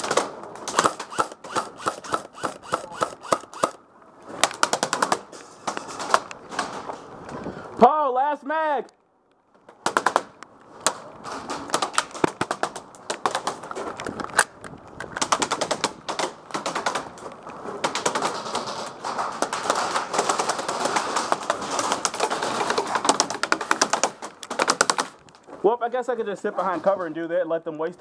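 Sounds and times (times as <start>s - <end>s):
pellets clattering on wooden walls: 15.2s - 25.6s.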